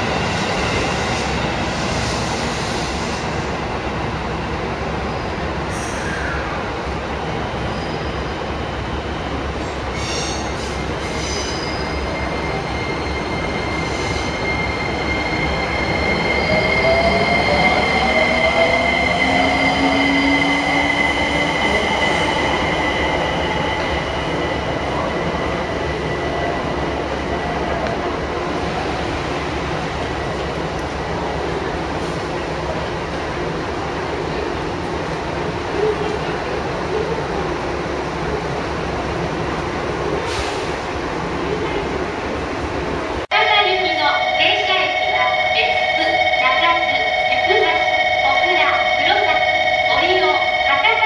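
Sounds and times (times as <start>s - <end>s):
train rolling noise: 0.0s - 6.2s, 6.8s - 51.0s
high wheel squeal: 9.9s - 18.2s.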